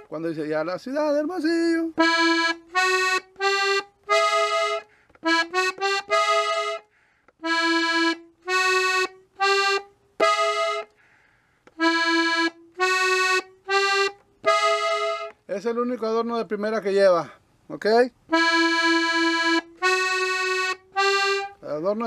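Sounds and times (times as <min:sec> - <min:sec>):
button accordion melody: 0:01.5 - 0:11.0, 0:11.6 - 0:15.5, 0:18.3 - 0:22.0.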